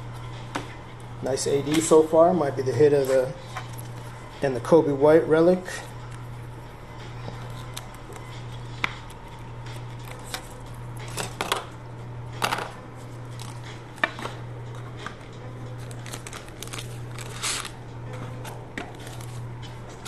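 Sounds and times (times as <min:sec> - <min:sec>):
steady low hum: 0:00.0 - 0:20.0
trading cards rustling and clicking: 0:07.2 - 0:11.7, 0:13.3 - 0:20.0.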